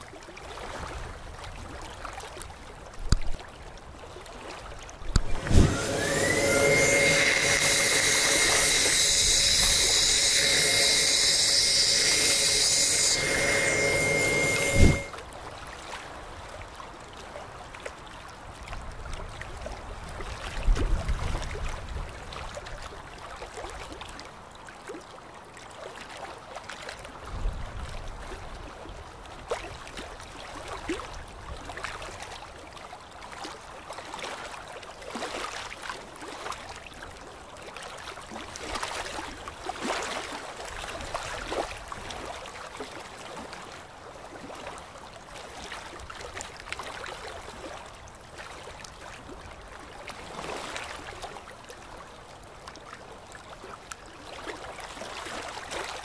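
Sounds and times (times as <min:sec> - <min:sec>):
dental equipment hissing: 0:05.4 - 0:15.1.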